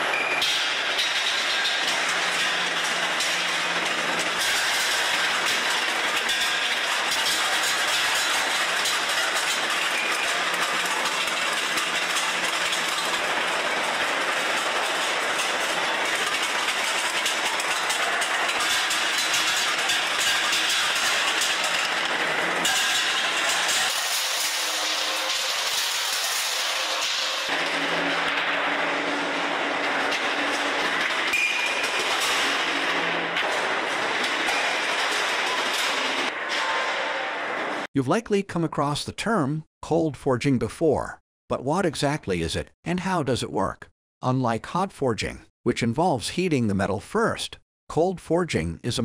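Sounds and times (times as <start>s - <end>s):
factory machinery running: 0.0s - 37.9s
steel balls rattling on metal chutes: 0.0s - 37.9s.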